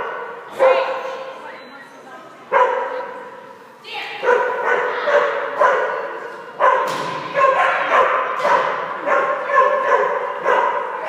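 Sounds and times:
dog barking with echo: 2.5 - 3.2, 4.2 - 11.0.

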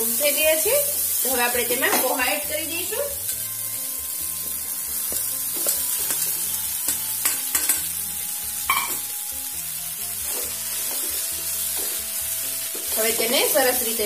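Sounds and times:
vegetables sizzling in a pan: 0.0 - 14.0
spatula knocking and scraping pan: 4.4 - 7.9.

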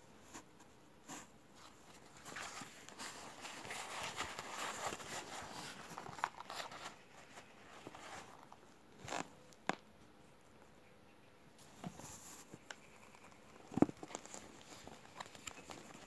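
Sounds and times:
fabric pouches rustling: 1.6 - 9.4.

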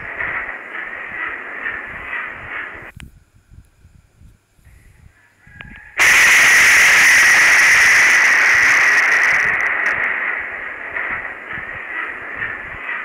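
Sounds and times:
loud distorted thunderclap: 0.0 - 2.9, 6.0 - 13.0.

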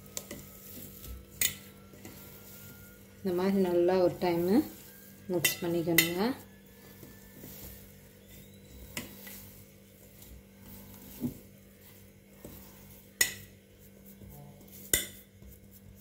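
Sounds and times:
hand mixing dough: 0.0 - 16.0
clinks against steel bowl: 5.4 - 6.2.

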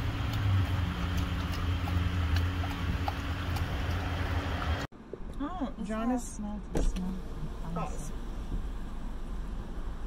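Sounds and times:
dog lapping water: 0.0 - 4.9
car idling hum: 7.1 - 10.0.

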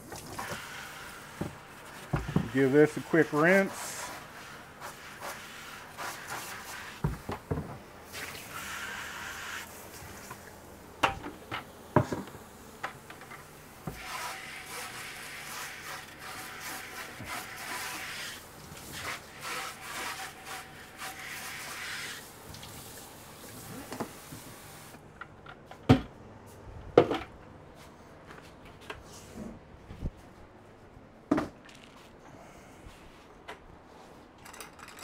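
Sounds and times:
rubbing against bucket walls: 0.2 - 7.3, 13.9 - 22.3.

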